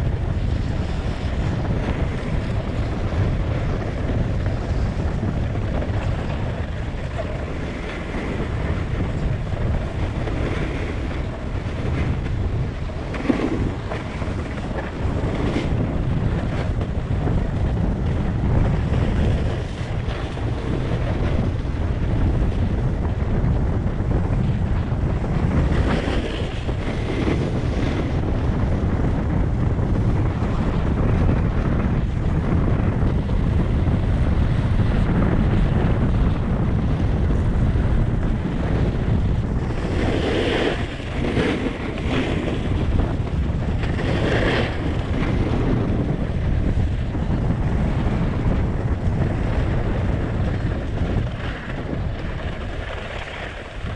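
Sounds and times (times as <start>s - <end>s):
wind buffeting microphone: 0.0s - 53.9s
snowboard edge scraping snow: 25.5s - 28.2s, 39.6s - 43.2s, 43.8s - 45.8s, 50.5s - 53.9s.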